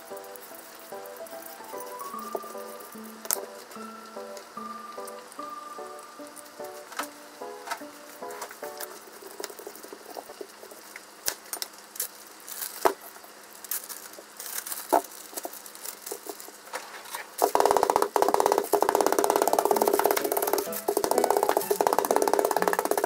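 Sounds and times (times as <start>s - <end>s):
plastic bag being handled: 12.0s - 17.8s
rolling pin pounding: 17.4s - 23.0s.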